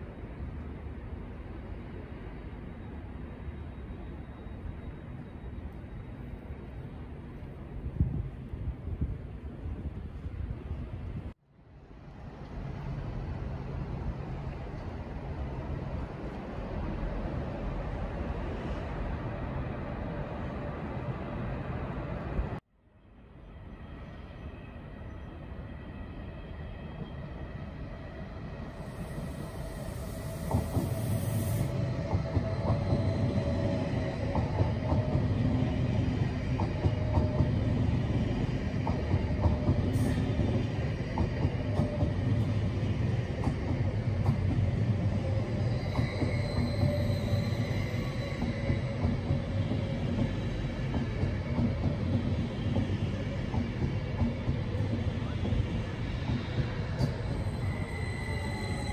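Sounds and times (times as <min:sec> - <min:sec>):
faint high squeal: 0:02.4 - 0:06.4, 0:23.4 - 0:36.0, 0:45.1 - 0:50.7, 0:56.7 - 0:58.9
train rumble: 0:26.8 - 0:58.9.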